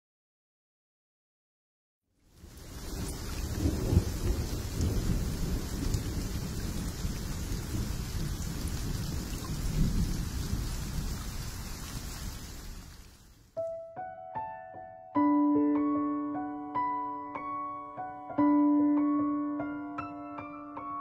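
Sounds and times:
heavy rain: 2.3s - 13.5s
low rumbles of thunder: 2.6s - 12.4s.

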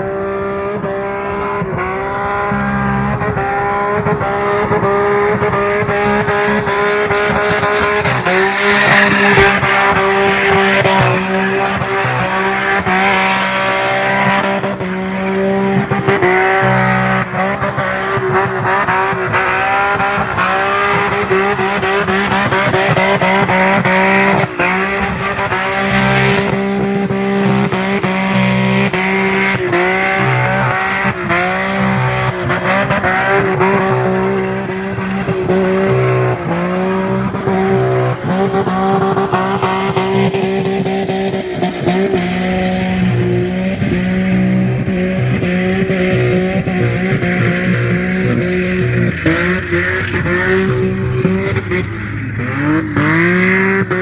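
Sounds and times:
car engine at high revs: 0.0s - 54.0s
tires squealing: 0.0s - 54.0s.

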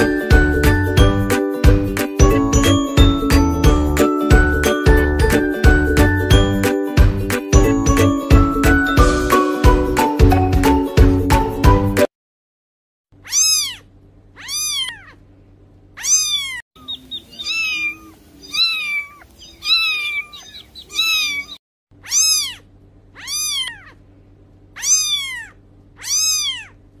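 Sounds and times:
kittens meowing: 13.2s - 15.2s, 16.0s - 24.0s, 24.8s - 26.8s.

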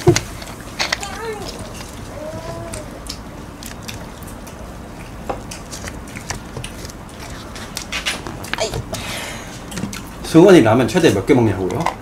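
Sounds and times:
crunching of fried chicken eaten: 2.7s - 8.6s.

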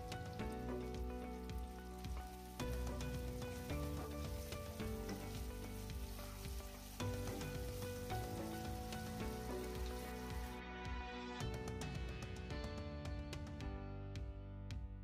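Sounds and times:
vegetables sizzling in oil: 0.0s - 10.6s
background music: 0.0s - 15.0s.

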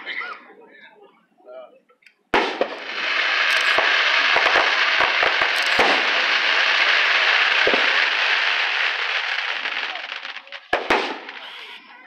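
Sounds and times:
firework crackling: 2.3s - 12.0s
firework shell bang: 10.8s - 11.7s.

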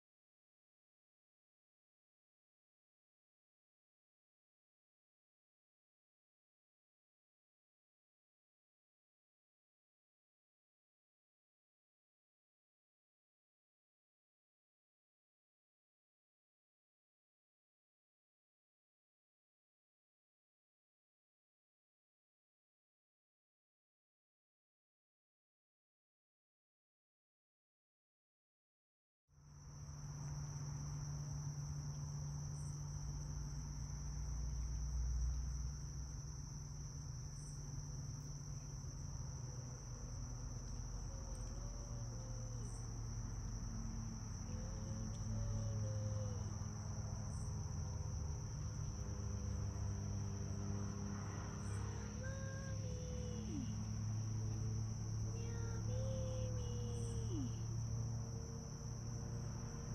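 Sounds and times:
crickets chirring: 29.4s - 59.9s
low steady hum: 29.4s - 59.9s
faint wavering calls: 39.4s - 47.6s, 51.6s - 58.0s.

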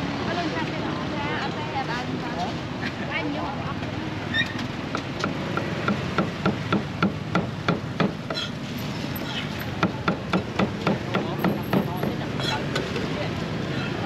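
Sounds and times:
cleaver chopping on wooden block: 5.0s - 8.5s.

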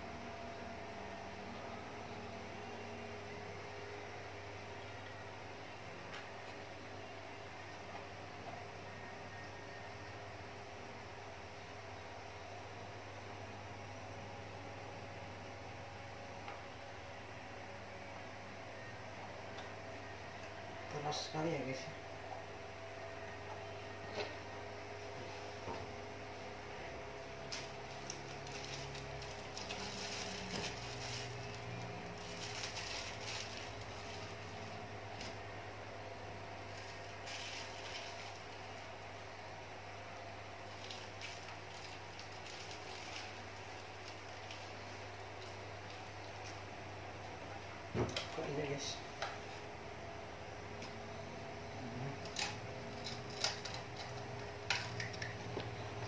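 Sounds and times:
low electrical hum: 0.0s - 56.0s
packaging rustling: 27.4s - 35.4s, 36.7s - 38.9s, 40.7s - 46.6s.

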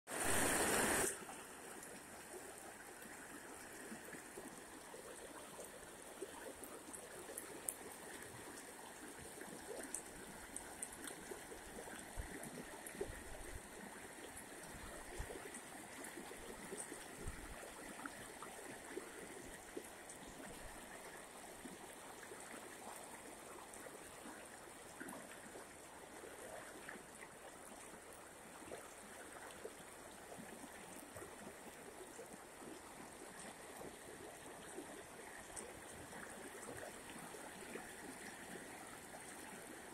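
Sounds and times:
floodwater rushing: 0.1s - 1.2s.

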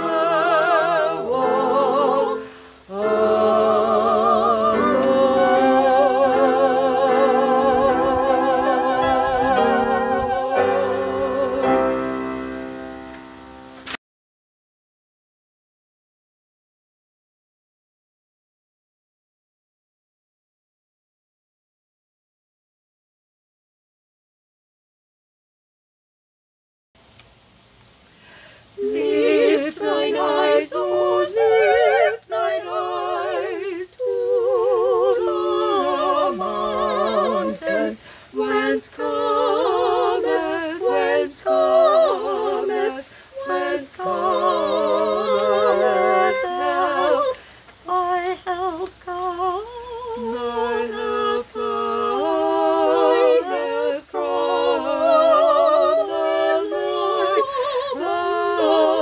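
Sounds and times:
a cappella group singing: 0.0s - 13.0s, 28.7s - 59.0s
singers breathing: 2.3s - 2.9s, 28.0s - 28.8s, 38.0s - 38.4s, 43.0s - 43.4s, 47.3s - 47.8s.

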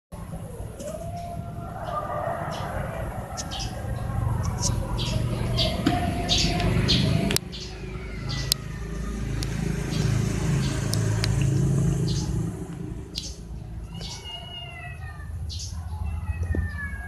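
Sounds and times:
steady low rumble: 0.2s - 7.4s
cat meowing: 13.8s - 15.4s, 16.0s - 17.0s.

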